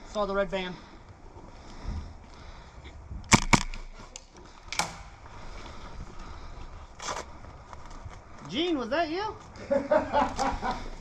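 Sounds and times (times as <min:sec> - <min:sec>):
airsoft gun shots: 0:03.3 - 0:04.0.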